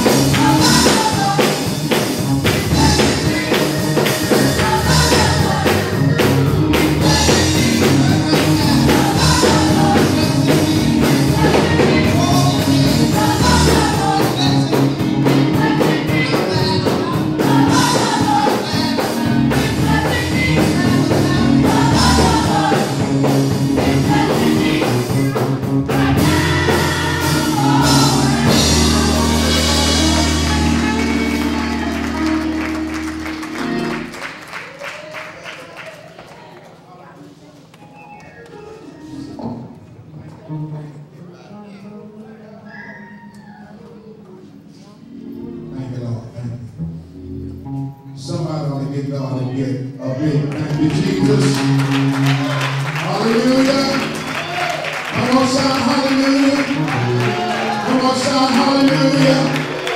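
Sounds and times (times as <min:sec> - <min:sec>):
singers singing: 0:00.0 - 0:33.9, 0:50.0 - 0:59.9
gospel band playing: 0:00.0 - 0:59.9.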